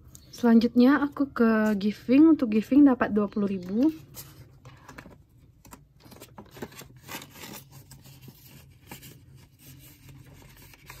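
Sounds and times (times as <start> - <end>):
paper banknotes rustling: 6.0 - 11.0.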